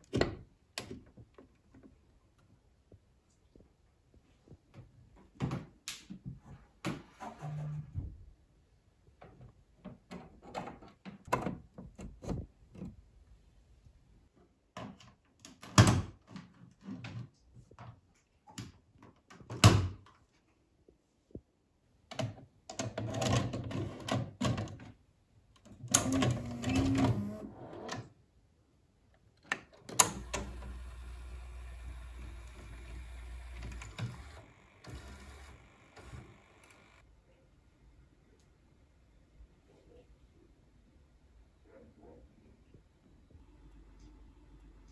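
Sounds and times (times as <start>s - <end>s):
loading mechanism whirring and clunking: 25.8s - 28.1s, 29.8s - 37.0s
video recorder mechanical hum: 26.0s - 27.8s, 30.0s - 37.0s.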